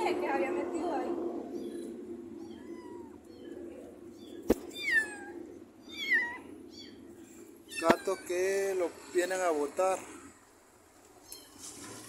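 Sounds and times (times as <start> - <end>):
kitten mewing: 2.4 - 3.6, 4.5 - 6.6, 7.6 - 8.4.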